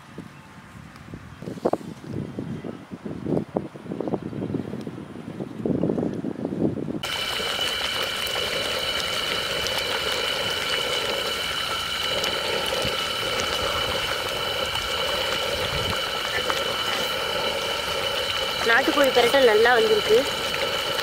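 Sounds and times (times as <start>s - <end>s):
curry bubbling in a pot: 7.0s - 21.0s
steady high whine: 7.0s - 21.0s.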